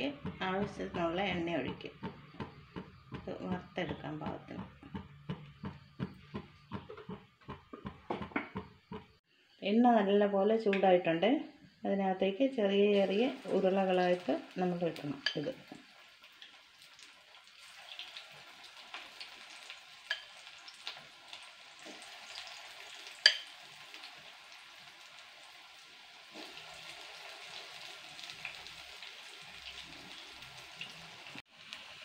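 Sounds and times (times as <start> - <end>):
fritters deep-frying in oil: 12.0 - 32.0.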